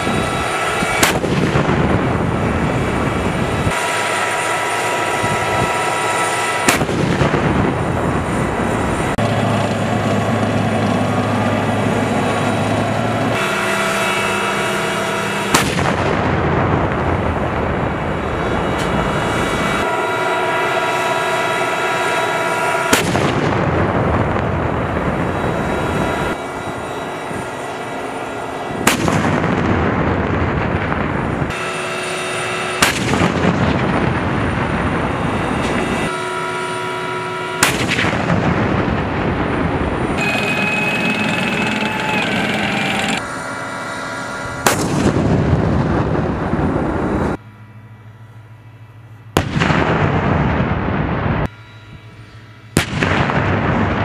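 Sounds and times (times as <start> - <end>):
engine whine: 0.0 - 54.0
tank gun firing heavy shots: 0.9 - 2.6, 6.6 - 7.9, 15.5 - 17.9, 22.9 - 24.8, 28.8 - 31.3, 32.8 - 34.8, 37.6 - 40.1, 44.6 - 46.3, 49.4 - 51.4, 52.8 - 54.0.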